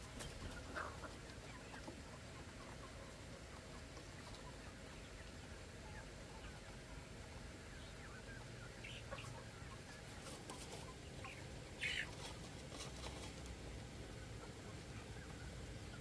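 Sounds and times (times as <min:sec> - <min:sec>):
young chickens clucking and cheeping: 0:00.0 - 0:16.0.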